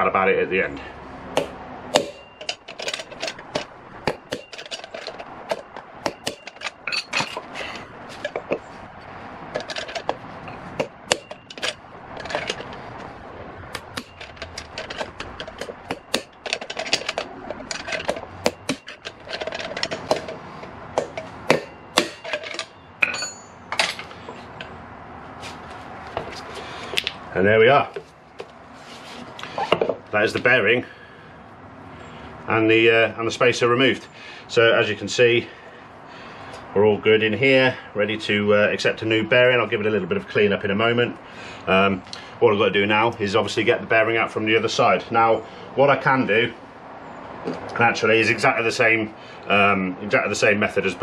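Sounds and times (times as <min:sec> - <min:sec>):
hammer striking pry bar: 0:01.4 - 0:07.5, 0:10.8 - 0:11.7, 0:13.7 - 0:17.2, 0:18.1 - 0:19.1, 0:21.0 - 0:24.1
spacer rattling: 0:13.7 - 0:20.4.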